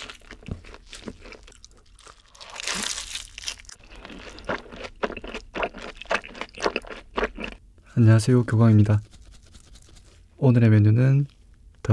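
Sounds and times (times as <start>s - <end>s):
chewing and biting food: 0.0s - 7.6s.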